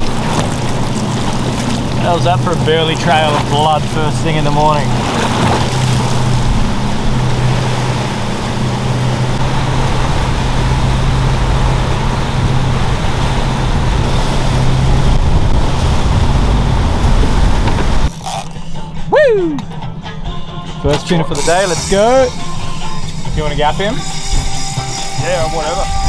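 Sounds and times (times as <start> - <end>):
water rushing past hull: 0.0 - 19.7
boat motor humming: 0.0 - 26.0.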